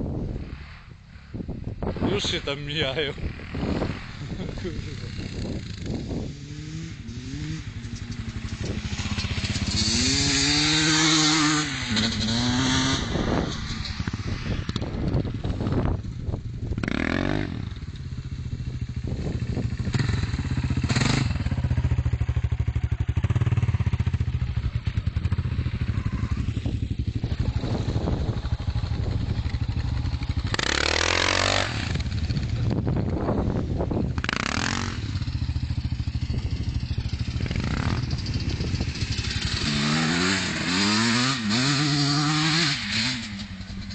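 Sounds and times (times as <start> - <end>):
motocross bikes revving: 2.0 - 14.9, 22.2 - 43.9.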